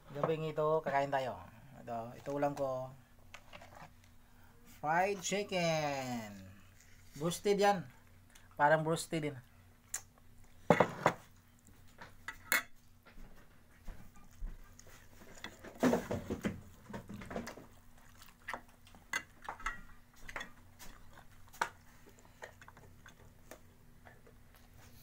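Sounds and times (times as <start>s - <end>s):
dishes clinking: 12.2s - 12.8s
person chewing: 14.0s - 15.6s, 16.7s - 23.8s.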